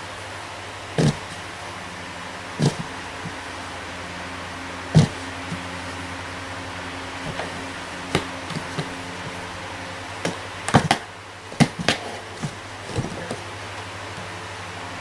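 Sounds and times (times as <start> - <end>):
low hum: 0.0 - 15.0
taps on cardboard box: 10.2 - 13.4.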